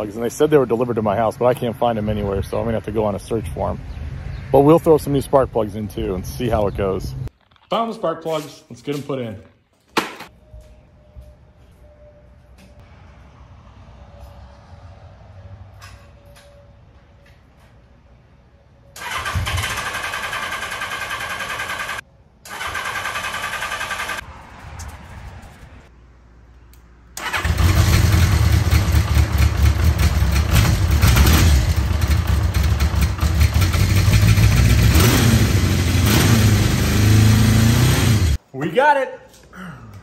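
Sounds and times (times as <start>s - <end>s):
electric starter cranking engine: 27.2s - 38.4s
motorcycle engine running: 27.4s - 38.4s.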